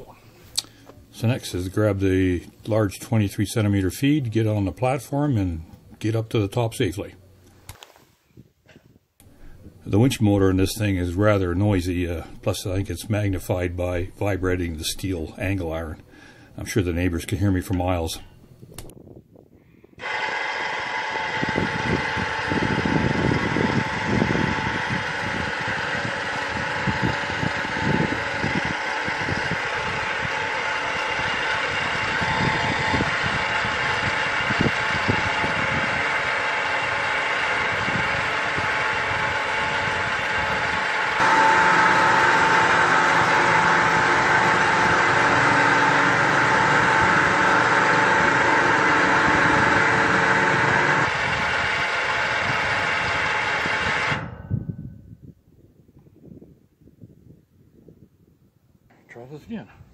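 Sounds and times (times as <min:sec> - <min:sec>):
winch motor running: 0:20.0 - 0:54.6
angle iron vibrating: 0:20.0 - 0:54.7.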